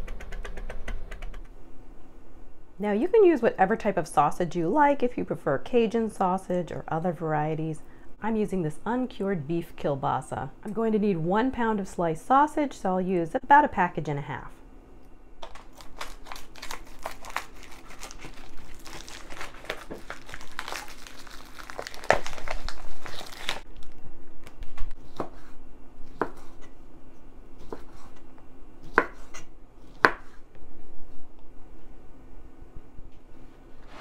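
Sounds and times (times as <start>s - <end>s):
plastic packaging crinkling: 15.4s - 24.8s.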